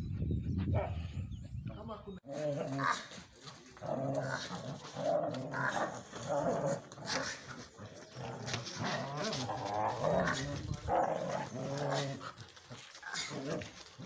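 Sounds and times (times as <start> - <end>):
dogs growling: 2.3 - 14.0.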